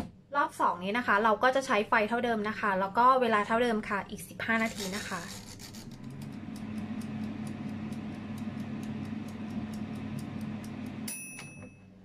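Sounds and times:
fan humming: 4.6 - 11.2
timer dial ticking: 6.5 - 11.0
timer ding: 11.0 - 11.9.

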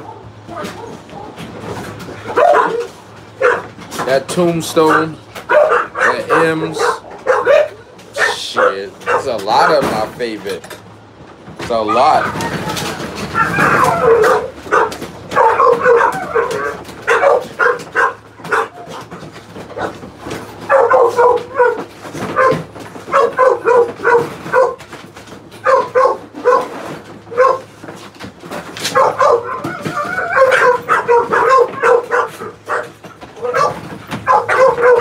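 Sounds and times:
dog barking: 2.2 - 3.8, 4.8 - 9.8, 13.3 - 19.1, 20.6 - 24.8, 25.6 - 27.7, 28.8 - 35.0.

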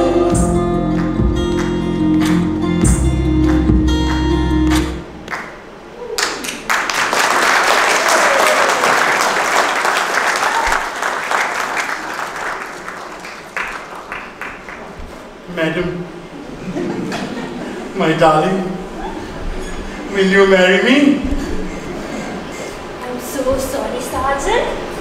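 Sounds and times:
dance song playing: 0.0 - 5.2
audience applauding: 5.2 - 15.2.

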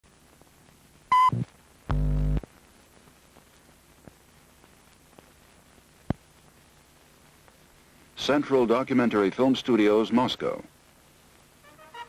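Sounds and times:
faint hiss: 0.0 - 12.0
loud low buzz: 1.3 - 2.4.

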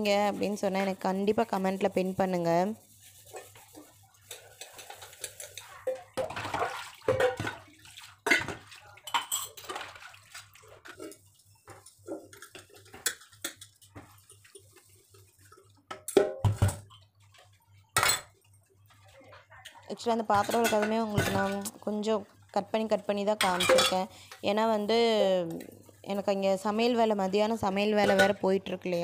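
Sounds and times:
steel pots clinking and knocking: 3.2 - 14.8, 15.4 - 18.4, 19.3 - 22.0, 23.2 - 24.5, 27.6 - 29.0
water splashing: 3.3 - 11.2.

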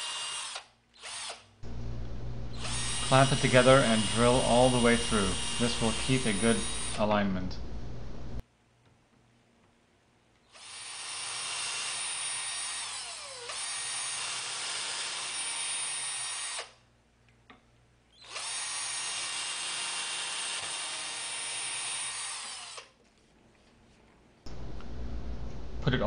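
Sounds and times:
drill motor whining through wood: 0.0 - 1.5, 2.5 - 7.2, 10.5 - 16.8, 18.2 - 23.0.

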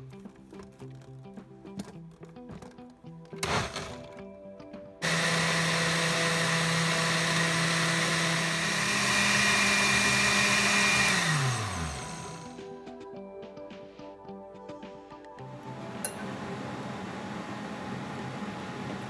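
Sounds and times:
blender motor running: 3.4 - 4.1, 5.0 - 12.7, 15.8 - 19.0.

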